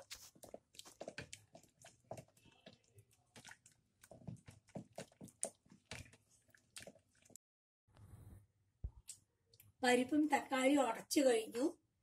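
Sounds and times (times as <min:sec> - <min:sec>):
wooden spoon mashing in pot: 0:00.0 - 0:07.4.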